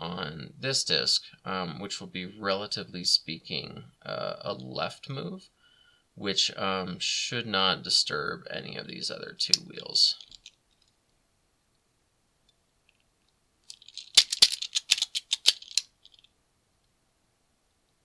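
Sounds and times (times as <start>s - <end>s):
padlock dial clicks and rattles: 13.6s - 16.3s.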